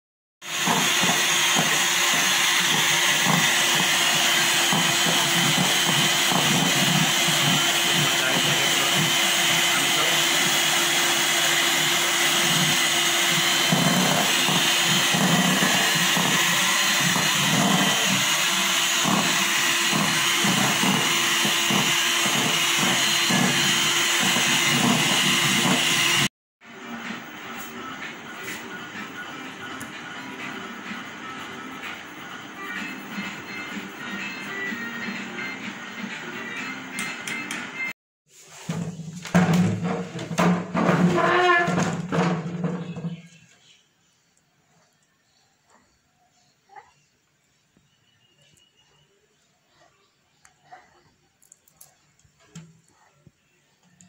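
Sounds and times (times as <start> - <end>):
electric hand mixer whipping: 0.4 - 26.3.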